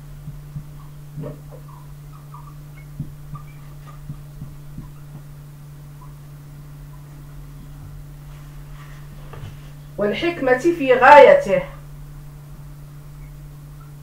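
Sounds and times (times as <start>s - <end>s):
steady low hum: 0.0s - 14.0s
marker squeaking on whiteboard: 0.8s - 5.3s.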